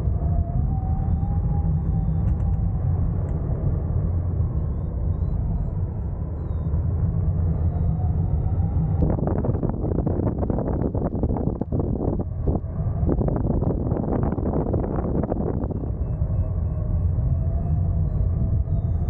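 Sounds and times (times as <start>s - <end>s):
wind buffeting microphone: 0.0s - 19.0s
faint wavering whistle: 0.3s - 2.8s, 4.4s - 9.0s, 15.0s - 19.0s.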